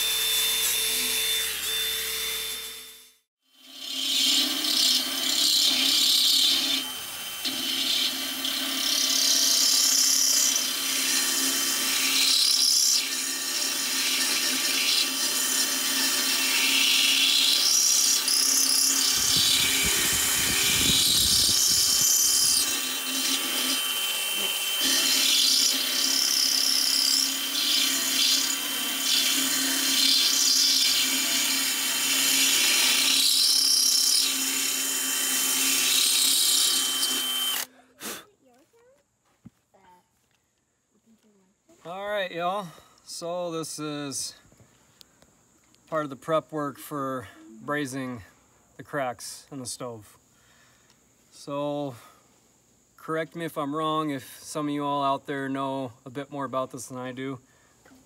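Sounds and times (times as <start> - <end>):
drill motor hum: 0.0 - 37.7.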